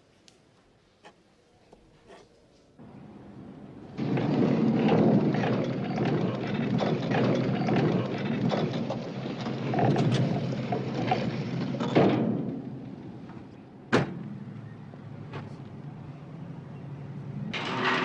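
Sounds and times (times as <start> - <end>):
heavy door rumbling and clattering: 4.0 - 14.2
door slamming: 13.9 - 14.2.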